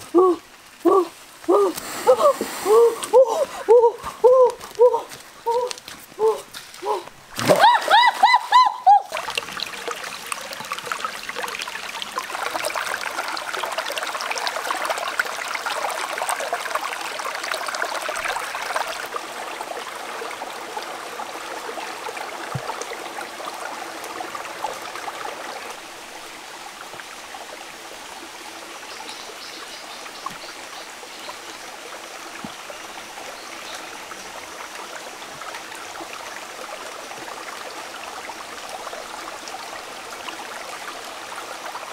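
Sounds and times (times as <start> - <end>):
stream flowing over stones: 0.0 - 41.9
water splash: 6.5 - 11.7
loud cry: 7.6 - 9.1.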